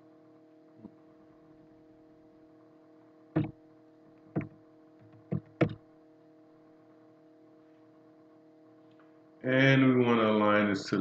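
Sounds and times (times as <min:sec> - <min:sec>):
low electrical hum: 0:00.0 - 0:11.0
keyboard and mouse clicks: 0:04.3 - 0:05.8.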